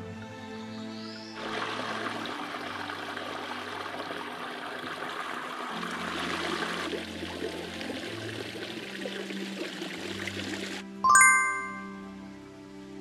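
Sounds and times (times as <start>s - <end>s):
soft background music: 0.0s - 13.0s
creek running over rocks: 1.4s - 10.8s.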